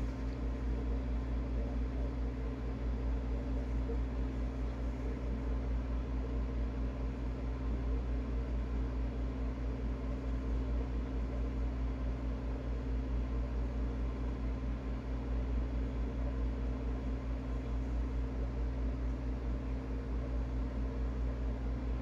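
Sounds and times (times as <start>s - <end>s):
freezer compressor humming: 0.0s - 22.0s.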